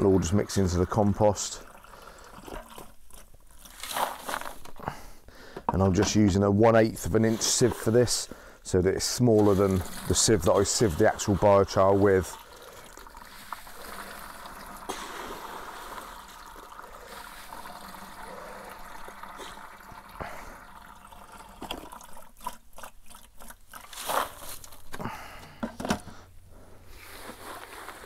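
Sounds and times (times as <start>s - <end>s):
metal scoop scooping wet material: 0.0s - 4.8s, 5.8s - 8.3s, 8.9s - 20.5s, 21.6s - 24.9s, 27.0s - 28.0s
water trickling and dripping: 9.6s - 14.9s.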